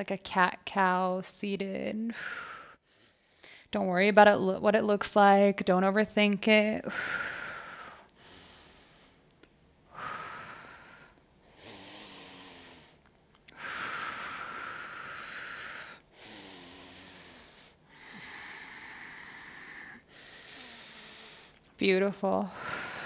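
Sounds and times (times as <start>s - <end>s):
woman breathing deeply: 2.1s - 3.7s, 6.8s - 21.6s, 22.4s - 23.0s.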